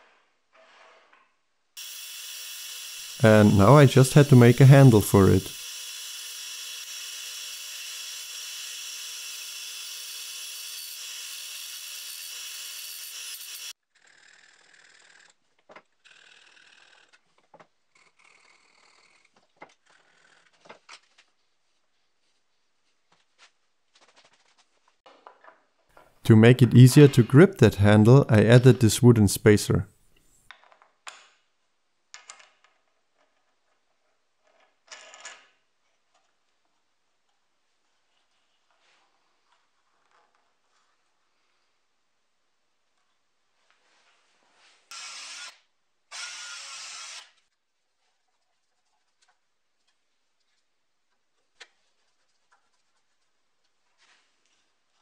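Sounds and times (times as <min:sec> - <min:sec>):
bandsaw cutting plywood: 0:01.8 - 0:13.7, 0:46.2 - 0:47.4.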